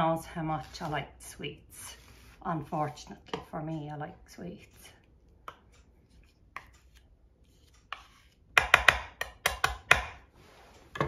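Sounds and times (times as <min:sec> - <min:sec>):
knife scraping fudge: 0:00.3 - 0:02.6, 0:06.0 - 0:08.5
knife knocking on metal pan: 0:08.6 - 0:10.2.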